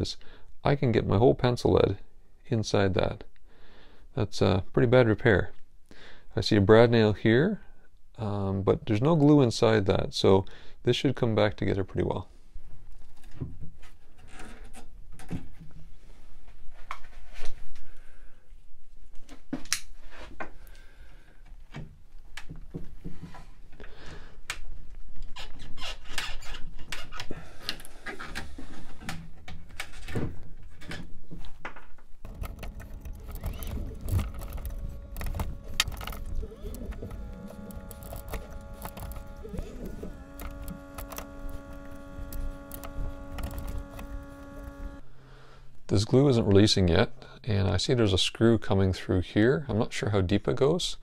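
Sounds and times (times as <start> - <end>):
steady hum: 32.2 - 45.2.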